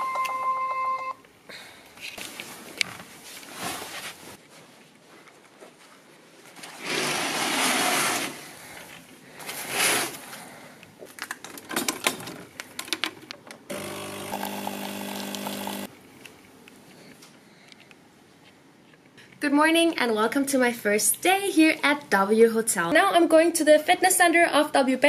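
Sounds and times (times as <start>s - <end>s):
coffee machine pump buzzing: 13.7s - 15.9s.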